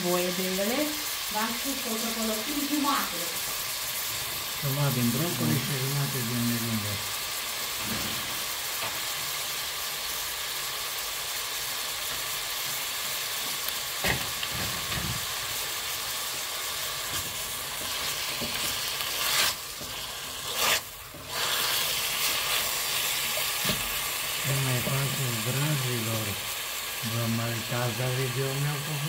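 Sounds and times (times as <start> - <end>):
onion and chicken sizzling in oil: 0.0 - 29.0
spatula stirring food: 12.1 - 25.2.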